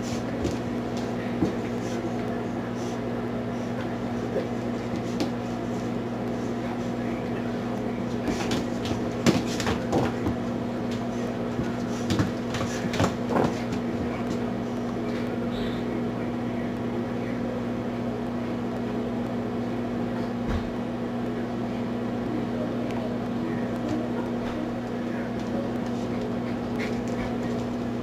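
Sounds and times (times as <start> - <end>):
puppy and cat scuffling: 0.0 - 15.9, 23.6 - 28.0
steady low hum: 0.0 - 28.0.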